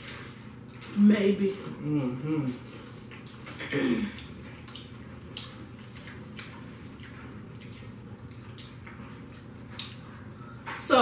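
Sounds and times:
chewing and wet mouth sounds: 0.0s - 11.0s.

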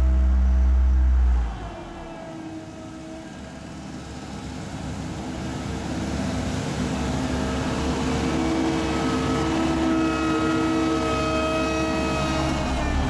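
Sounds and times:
road roller diesel engine running: 0.0s - 13.0s.

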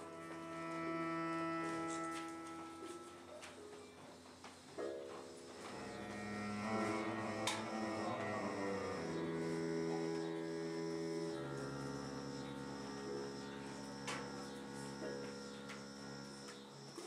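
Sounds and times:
droning electronic chords: 0.0s - 3.4s, 4.7s - 17.0s
faint pulsing high tone: 4.7s - 17.0s.

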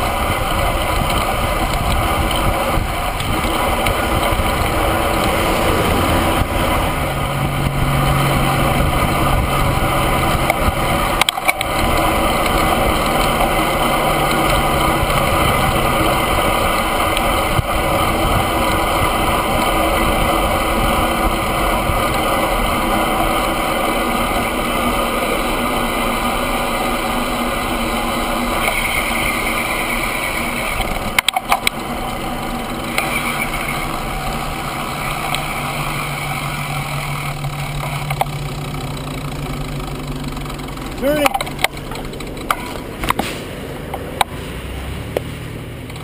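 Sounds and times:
bicycle tyre noise: 0.0s - 46.0s
wind rush: 0.2s - 11.1s
rattle of knocks: 40.5s - 43.4s.

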